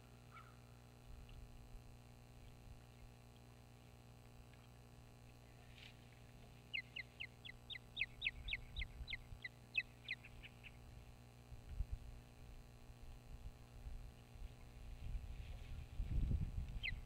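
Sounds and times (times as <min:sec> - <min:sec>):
osprey whistled chirps: 0:06.7 - 0:10.8, 0:16.8 - 0:17.0.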